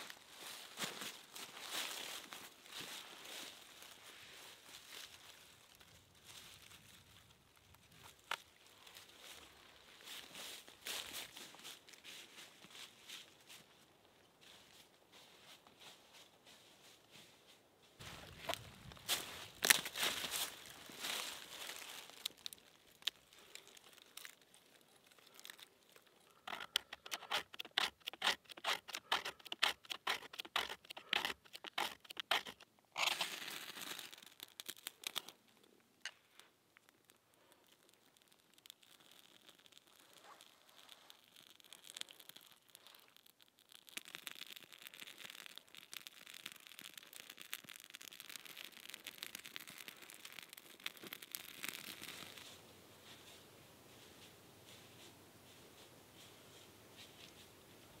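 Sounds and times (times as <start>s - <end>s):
small fire crackling: 0.0s - 17.1s, 17.9s - 58.0s
loud rasp: 26.5s - 32.6s
sharp scraping strokes: 26.5s - 33.4s.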